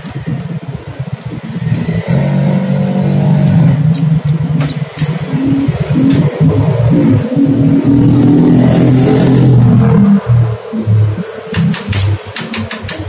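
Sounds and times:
vehicle engine running: 0:00.8 - 0:12.8
sharp clicks: 0:11.5 - 0:13.0.

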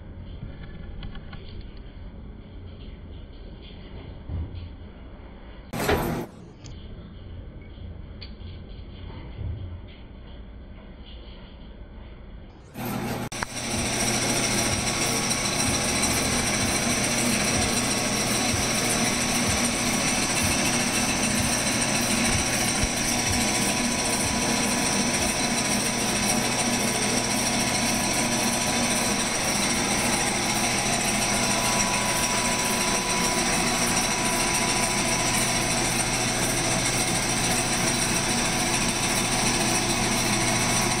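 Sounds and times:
machinery hum and whine: 0:00.0 - 0:41.0
workshop machinery clatter: 0:05.8 - 0:06.4, 0:12.8 - 0:41.0.

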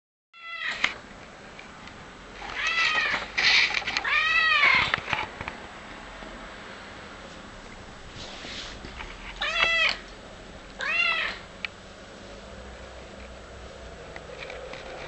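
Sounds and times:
cat meowing: 0:02.6 - 0:03.2, 0:04.0 - 0:04.9, 0:09.4 - 0:10.0, 0:10.8 - 0:11.5.

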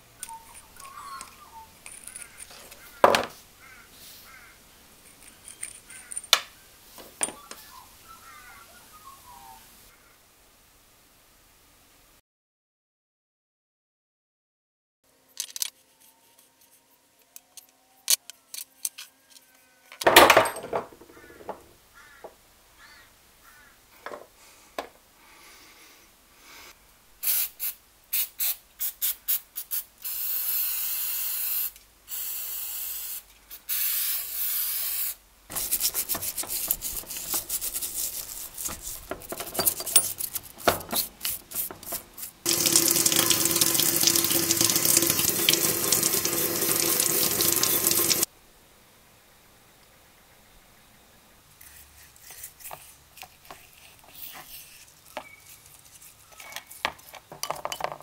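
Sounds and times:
metal parts clicking: 0:00.2 - 0:02.8, 0:05.0 - 0:06.4, 0:35.5 - 0:42.4
cleaning liquid spraying: 0:35.5 - 0:38.9, 0:41.3 - 0:48.3
stiff brush scrubbing: 0:35.5 - 0:48.2.

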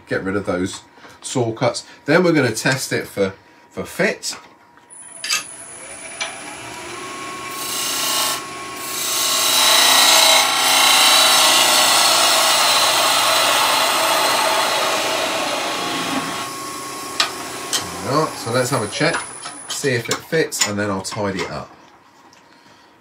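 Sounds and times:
power tool motor whining: 0:04.9 - 0:19.8.

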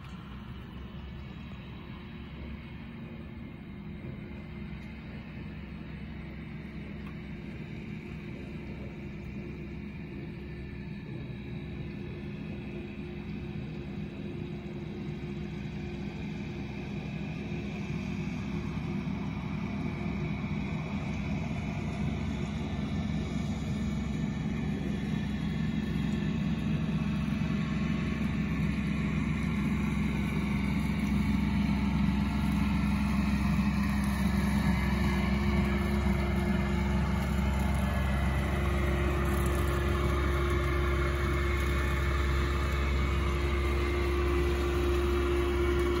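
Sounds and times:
tractor engine running: 0:00.0 - 0:46.0.

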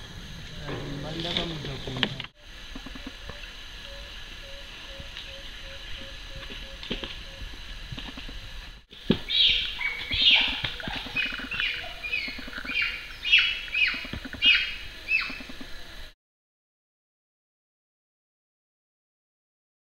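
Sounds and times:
loud high falling calls: 0:09.2 - 0:16.1.

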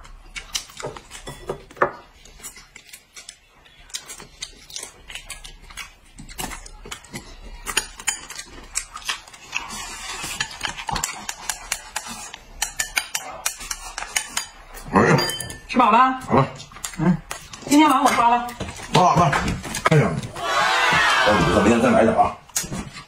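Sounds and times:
chopsticks clicking on bowls: 0:10.2 - 0:15.4
mouth eating noises: 0:16.2 - 0:19.0.

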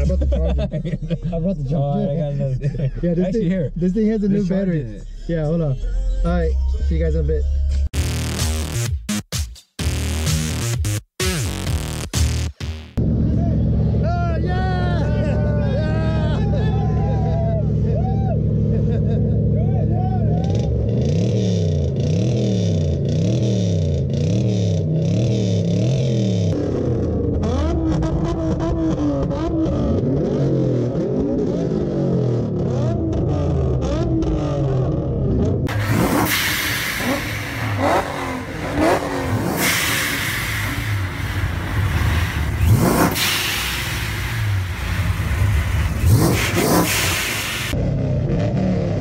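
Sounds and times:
pickup truck engine revving: 0:13.0 - 0:49.0.

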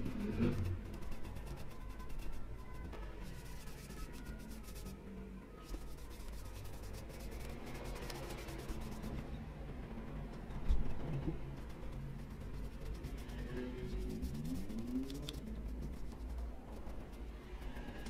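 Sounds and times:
paintbrush scratching on wood: 0:00.0 - 0:05.0, 0:05.6 - 0:09.2, 0:11.6 - 0:18.0.

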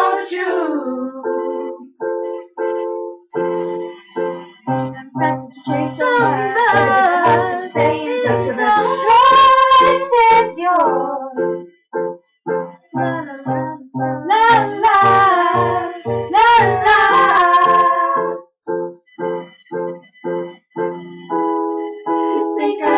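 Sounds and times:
person singing: 0:00.0 - 0:02.0, 0:04.7 - 0:11.6, 0:12.9 - 0:18.4, 0:22.3 - 0:22.9
keyboard chords: 0:00.0 - 0:22.9.

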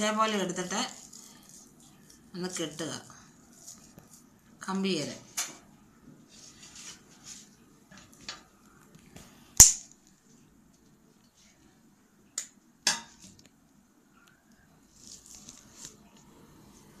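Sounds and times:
paper rustling: 0:14.9 - 0:16.2.

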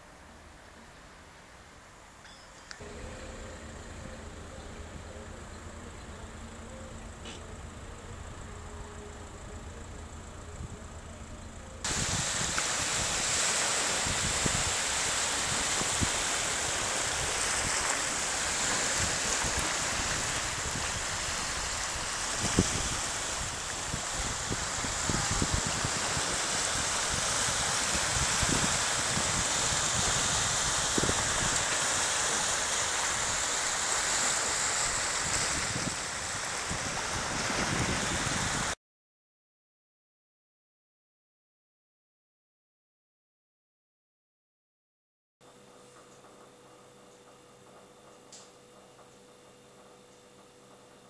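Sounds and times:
wind buffeting microphone: 0:11.9 - 0:17.9, 0:18.6 - 0:32.5, 0:35.0 - 0:38.8
waves lapping over rocks: 0:11.9 - 0:38.6.

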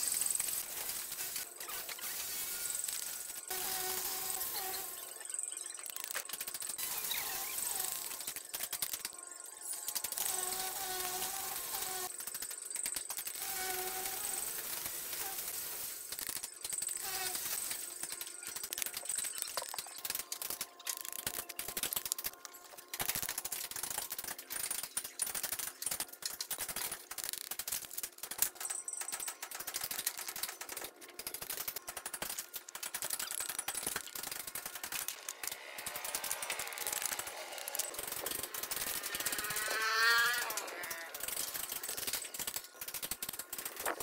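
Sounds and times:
rising multi-pitched whine: 0:33.3 - 0:42.7.

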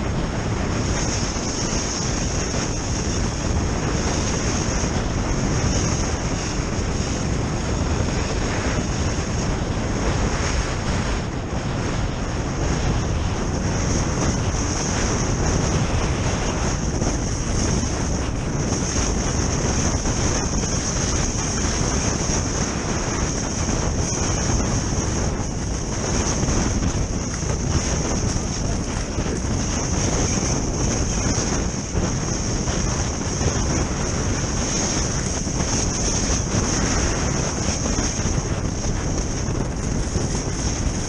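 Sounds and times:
wind rushing over microphone: 0:00.0 - 0:41.0
skis scraping on hard snow: 0:13.7 - 0:41.0.

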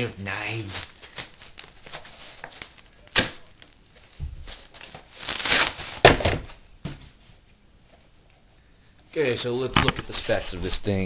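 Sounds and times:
plastic packaging crinkling and tearing: 0:00.0 - 0:06.4.

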